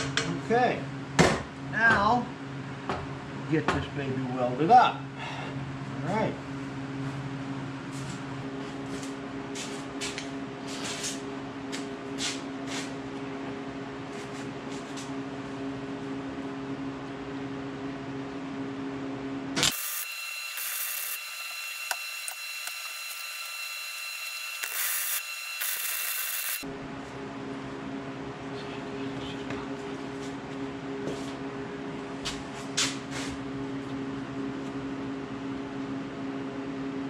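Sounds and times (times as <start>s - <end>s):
electrical hum: 0.0s - 37.0s
welder crackling bursts: 19.6s - 26.6s.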